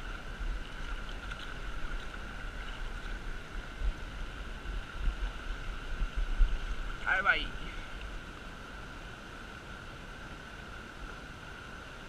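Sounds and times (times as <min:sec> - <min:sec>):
wind rumble on microphone: 0:00.0 - 0:09.0.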